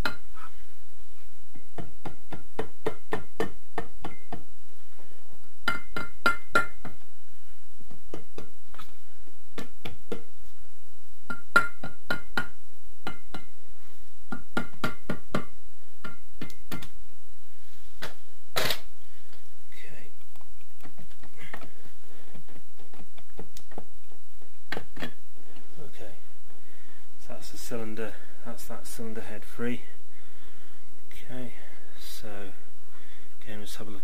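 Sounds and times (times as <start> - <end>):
rubber mallet tapping metal: 0.0 - 0.3, 1.5 - 4.5, 5.6 - 7.0, 11.3 - 13.6, 14.3 - 16.9.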